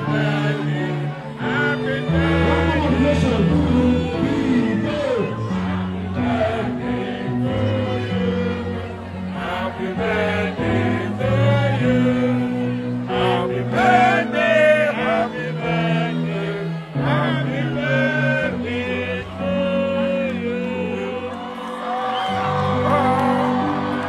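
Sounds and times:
people singing: 0.0s - 24.0s.

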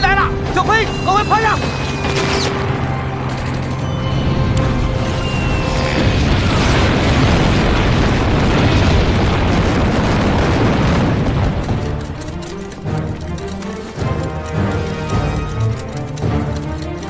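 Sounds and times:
dramatic film music: 0.0s - 17.0s
bombs exploding: 5.8s - 12.1s.

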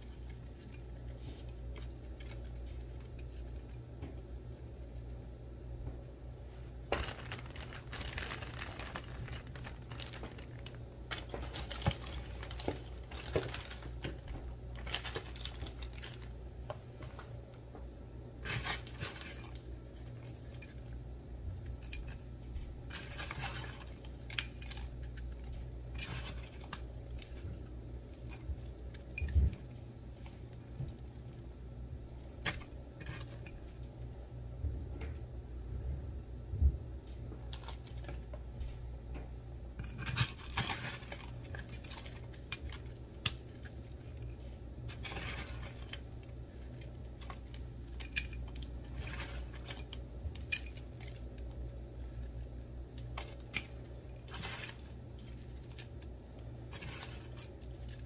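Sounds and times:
crushed ice crunching: 6.9s - 16.4s, 18.4s - 20.9s, 21.6s - 31.4s, 39.8s - 58.0s.

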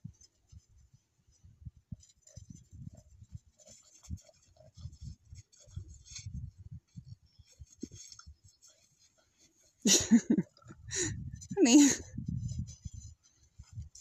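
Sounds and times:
footsteps crunching in snow: 2.0s - 10.5s.

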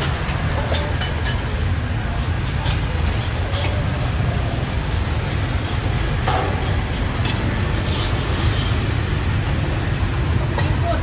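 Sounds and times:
scattered clicks and knocks: 6.1s - 7.6s.

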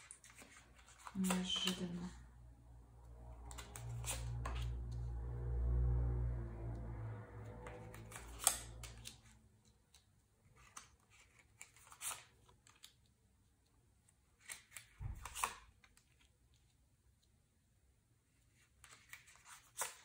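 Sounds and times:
cards snapping and sliding: 3.4s - 4.8s, 7.7s - 13.1s, 14.3s - 16.3s, 18.6s - 20.0s.

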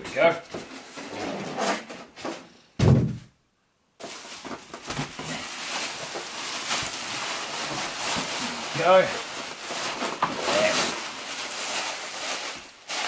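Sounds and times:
single thump: 2.8s - 3.3s
plastic bag crinkling: 4.0s - 13.0s.

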